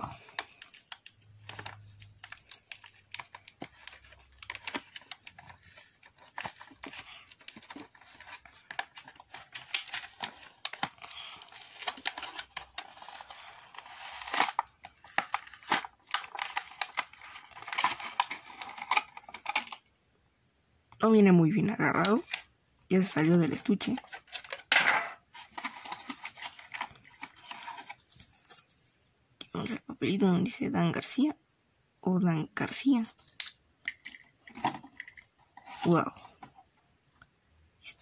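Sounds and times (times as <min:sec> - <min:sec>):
plastic packaging crinkling and tearing: 0:00.0 - 0:19.8, 0:23.8 - 0:24.7, 0:25.3 - 0:28.8.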